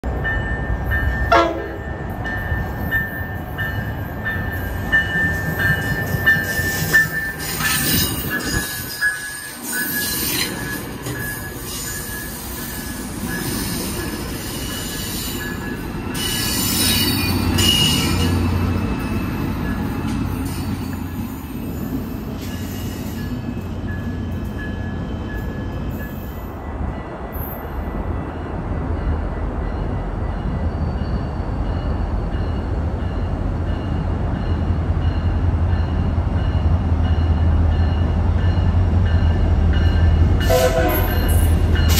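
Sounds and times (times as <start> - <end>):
diesel locomotive engine rumble: 0.0 - 41.9
train rolling past: 0.0 - 41.9
train wheels squealing: 4.4 - 26.6, 30.3 - 32.7.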